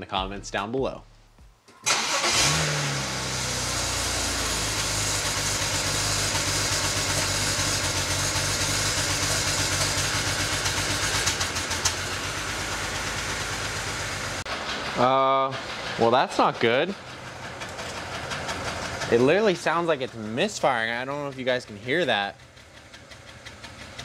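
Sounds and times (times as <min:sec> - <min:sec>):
car engine idling roughly: 0:01.9 - 0:24.0
engine ticks: 0:15.6 - 0:24.0.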